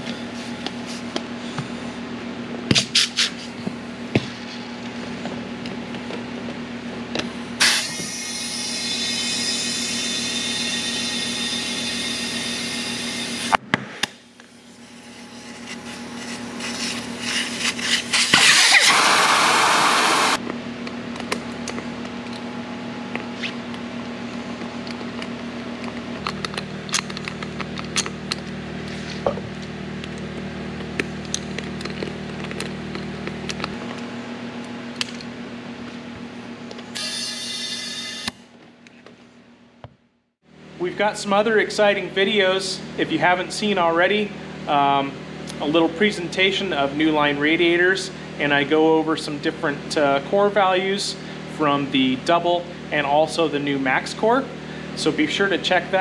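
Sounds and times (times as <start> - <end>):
steady machine hum: 0.0 - 56.0
compressed air hissing into tire: 7.6 - 13.6, 14.5 - 20.4.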